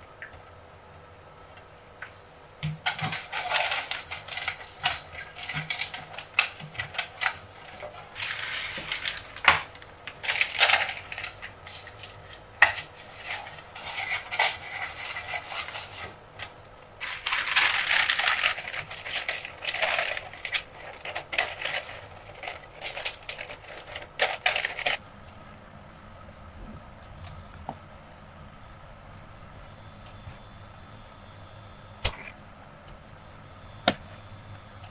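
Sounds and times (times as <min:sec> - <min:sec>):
baking paper crinkling: 0:02.8 - 0:25.0
brush scraping a metal pan: 0:02.9 - 0:09.2, 0:10.2 - 0:16.2.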